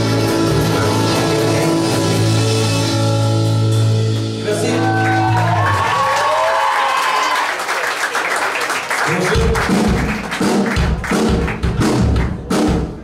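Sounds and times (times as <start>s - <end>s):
drums and bass steady beat: 0.0s - 5.4s, 9.4s - 13.0s
live rock band: 0.0s - 7.2s, 9.1s - 13.0s
crowd applauding and cheering: 4.2s - 12.5s.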